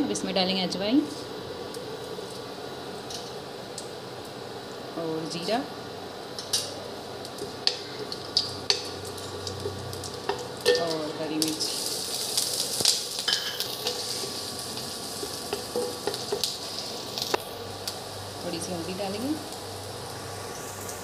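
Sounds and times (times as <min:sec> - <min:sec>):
seeds sizzling in hot oil: 0:00.0 - 0:21.0
spatula tapping and scraping pan: 0:15.2 - 0:16.5.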